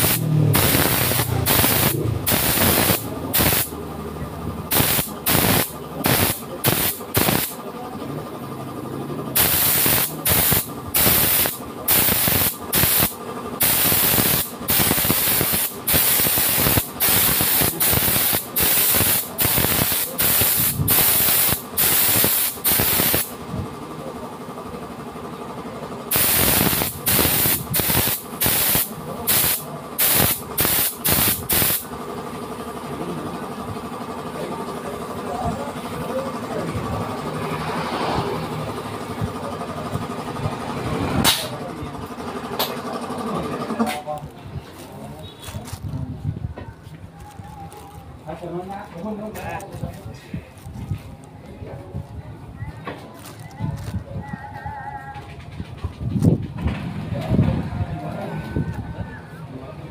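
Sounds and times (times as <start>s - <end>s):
short hissing bursts: 0.0s - 3.8s, 4.7s - 7.6s, 9.4s - 23.4s, 26.1s - 31.9s
motorcycle engine idling: 0.0s - 40.9s.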